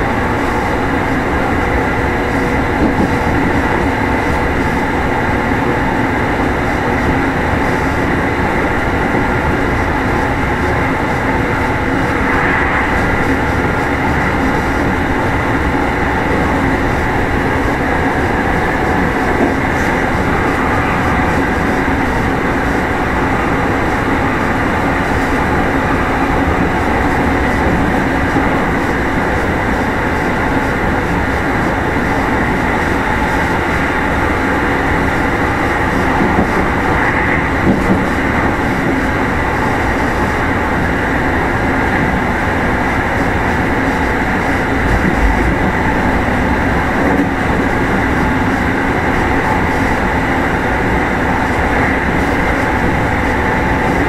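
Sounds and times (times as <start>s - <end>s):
train wheels on rails: 0.0s - 54.0s.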